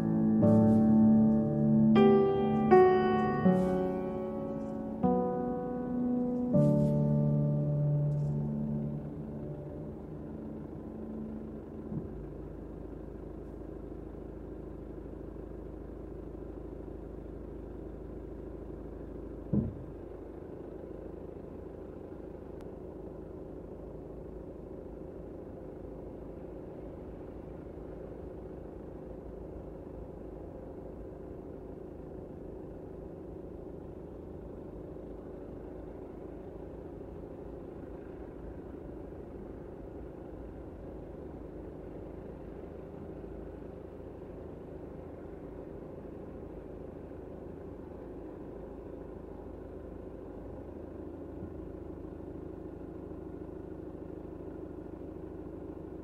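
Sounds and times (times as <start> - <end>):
road noise: 0.0 - 22.9
car engine running: 0.0 - 56.0
short thump: 19.5 - 20.0.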